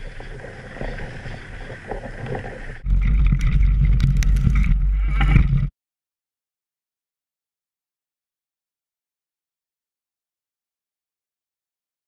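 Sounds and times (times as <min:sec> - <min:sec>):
bike tyre noise on dirt: 0:00.0 - 0:05.7
gravel clicks: 0:00.0 - 0:05.7.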